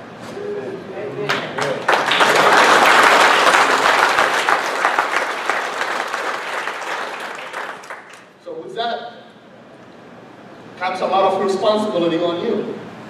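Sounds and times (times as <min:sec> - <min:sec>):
audience applauding: 0:01.3 - 0:08.3.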